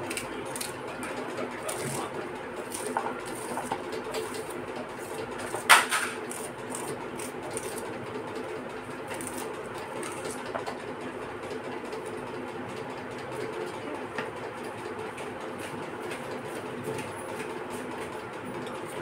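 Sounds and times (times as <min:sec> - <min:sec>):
knife cutting onion on plastic plate: 0:01.7 - 0:08.0.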